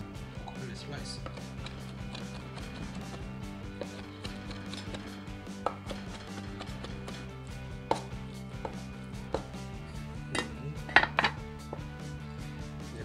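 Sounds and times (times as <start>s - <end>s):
cleaver chopping on wooden board: 1.2s - 9.6s.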